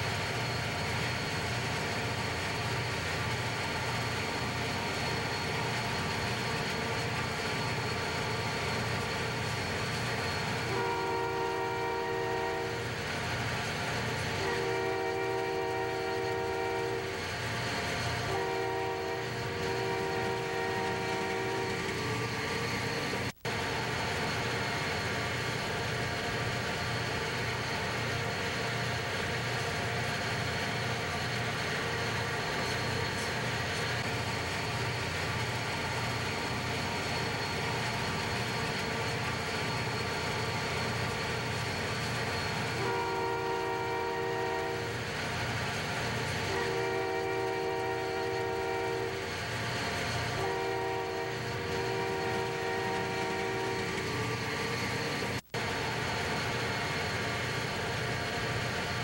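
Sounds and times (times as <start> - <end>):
diesel locomotives running: 0.0 - 59.0
locomotive horn blasts: 10.6 - 12.8, 14.4 - 17.2, 18.2 - 22.0, 42.8 - 45.0, 46.4 - 49.3, 50.4 - 54.1.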